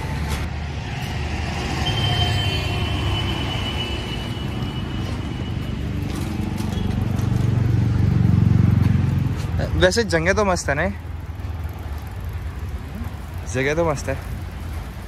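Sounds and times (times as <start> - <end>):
road traffic passing: 0.0 - 15.0
vehicle rumble: 0.0 - 15.0
thin steady high tone: 1.7 - 5.7.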